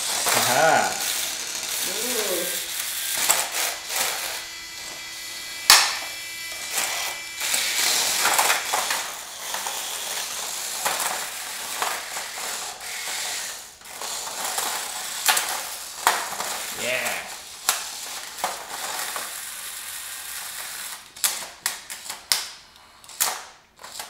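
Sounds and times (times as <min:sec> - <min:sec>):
small electric motors whirring: 0:00.0 - 0:21.2
sharp crack of toy robot hit: 0:05.6 - 0:06.0.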